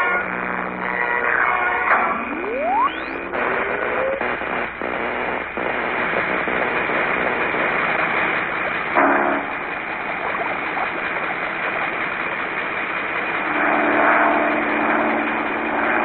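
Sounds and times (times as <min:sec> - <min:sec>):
rising electric whine: 0:00.0 - 0:09.5
crackling hiss of electric arcs: 0:00.0 - 0:16.0.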